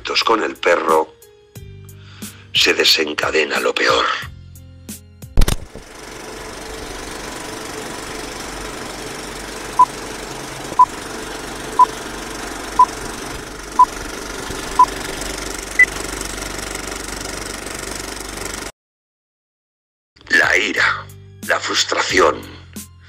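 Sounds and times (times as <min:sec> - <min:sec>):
film projector whirring: 0:05.4 - 0:18.7.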